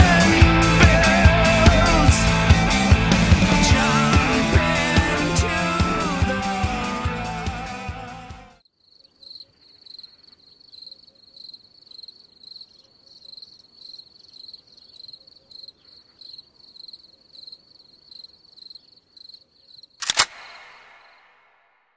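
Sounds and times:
cricket chirping: 0:08.6 - 0:20.0.

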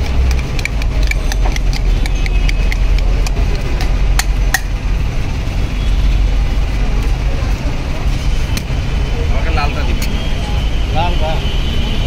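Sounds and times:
low rumble of street traffic: 0:00.0 - 0:12.0.

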